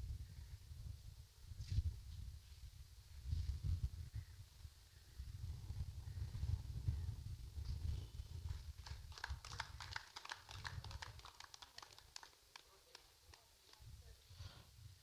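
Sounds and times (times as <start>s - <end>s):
faint hand clapping: 8.4s - 13.9s.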